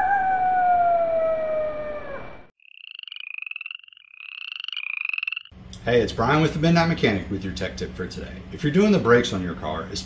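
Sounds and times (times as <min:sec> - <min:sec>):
long howl falling in pitch: 0:00.0 - 0:02.5
high fast-pulsed trilling calls: 0:02.6 - 0:05.5.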